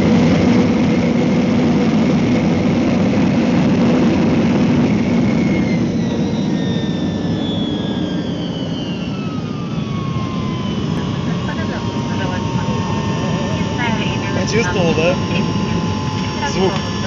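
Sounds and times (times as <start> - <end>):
engines spooling down whine: 0.0 - 17.0
jet engines roaring: 0.0 - 17.0
runway rumble: 9.5 - 17.0.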